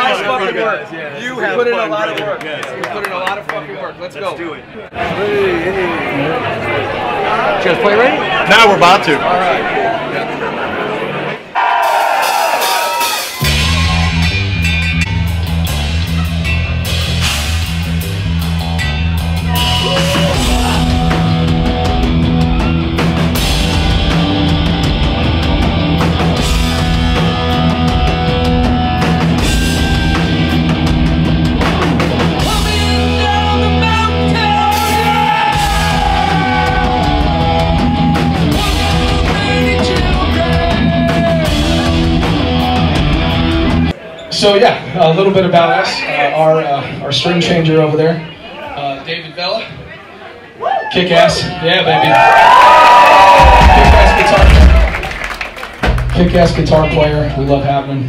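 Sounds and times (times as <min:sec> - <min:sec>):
drum kit: 0:11.8 - 0:43.9, 0:53.1 - 0:57.0
electric guitars: 0:13.4 - 0:43.9
bass guitar: 0:13.4 - 0:44.0, 0:53.2 - 0:55.1, 0:55.7 - 0:58.0
lead singer's voice: 0:32.4 - 0:41.9.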